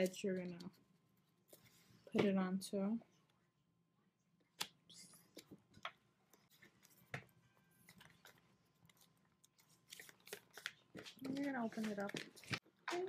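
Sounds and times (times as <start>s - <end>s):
paper rustling and tapping: 7.9s - 13.0s.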